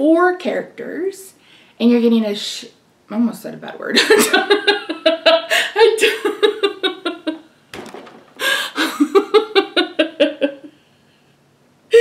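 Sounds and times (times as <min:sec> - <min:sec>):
woman laughing: 0:04.0 - 0:07.5, 0:08.4 - 0:10.8.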